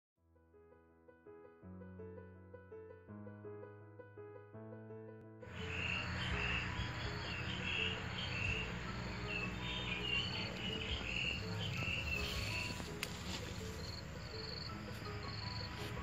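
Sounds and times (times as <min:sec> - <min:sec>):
piano music: 0:00.3 - 0:16.0
insects chirping: 0:05.5 - 0:16.0.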